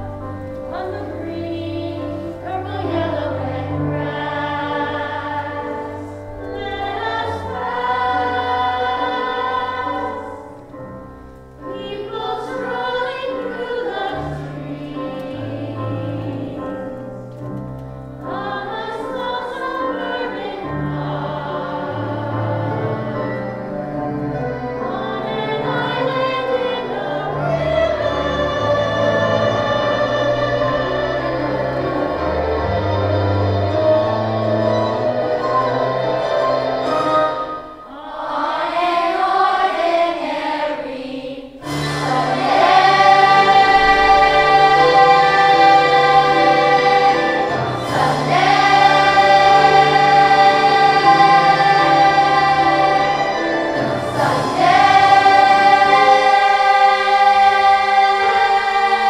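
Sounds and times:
instrumental accompaniment: 0:00.0 - 0:40.0, 0:41.5 - 0:59.0
voices singing a slow song: 0:00.7 - 0:10.7, 0:11.7 - 0:16.9, 0:18.3 - 0:59.0.

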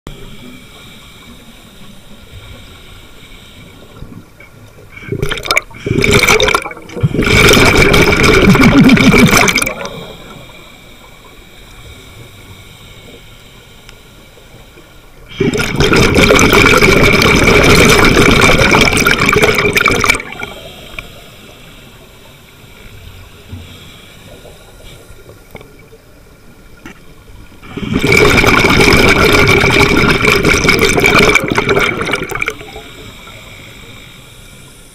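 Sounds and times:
exhaled bubbles underwater: 0:04.9 - 0:10.5, 0:15.2 - 0:21.0, 0:27.4 - 0:33.3.

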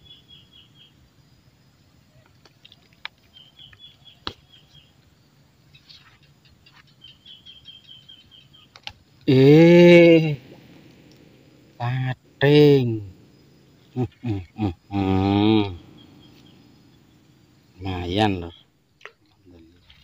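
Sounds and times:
bird chirping: 0:00.0 - 0:01.0, 0:02.1 - 0:20.0
man calling out: 0:09.2 - 0:10.7, 0:11.8 - 0:13.2, 0:14.0 - 0:16.2, 0:17.8 - 0:18.5.

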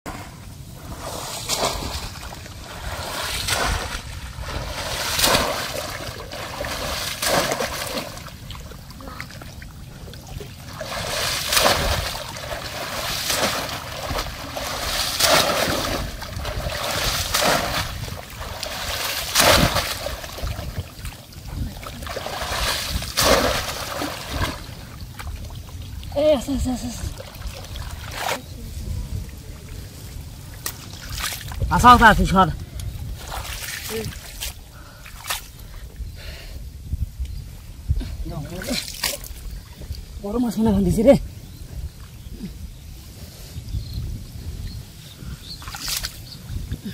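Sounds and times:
hands splashing in pond water: 0:01.0 - 0:09.6, 0:10.3 - 0:25.6, 0:38.6 - 0:39.5, 0:45.6 - 0:46.3.

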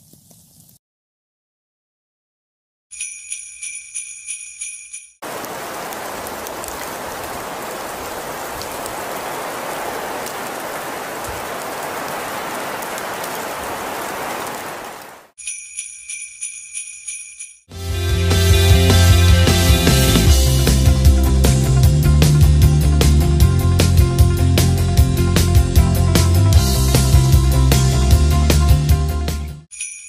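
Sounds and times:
chime jingle: 0:02.9 - 0:05.2, 0:15.4 - 0:17.7, 0:29.7 - 0:30.0
street noise hiss: 0:05.2 - 0:15.3.

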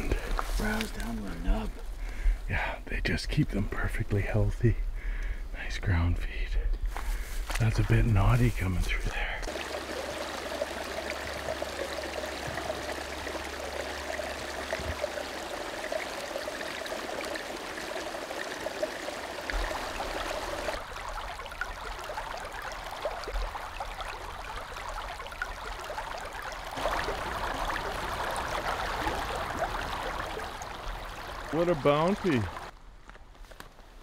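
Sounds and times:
creek water trickling: 0:00.0 - 0:02.8, 0:06.9 - 0:32.8
shallow river rushing: 0:09.5 - 0:32.7.

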